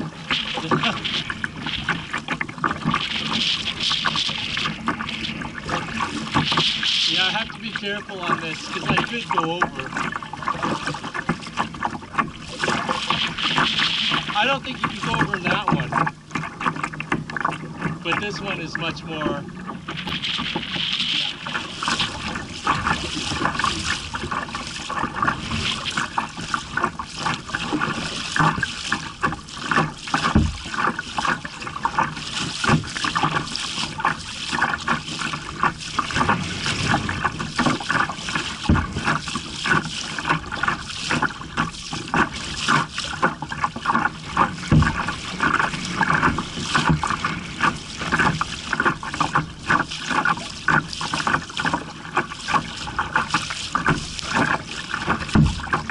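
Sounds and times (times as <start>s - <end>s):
paddle splashes: 0.0s - 55.9s
water slapping against kayak hull: 0.0s - 55.9s
dull deep thumps: 19.2s - 31.0s, 35.4s - 40.9s, 43.2s - 49.6s, 53.7s - 55.9s.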